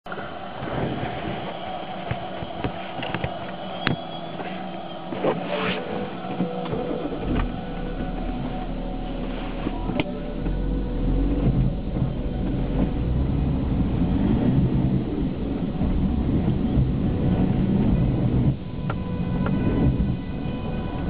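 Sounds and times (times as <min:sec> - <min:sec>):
diesel engine running from inside car: 0:05.9 - 0:21.0
deep low rumble: 0:06.1 - 0:21.0.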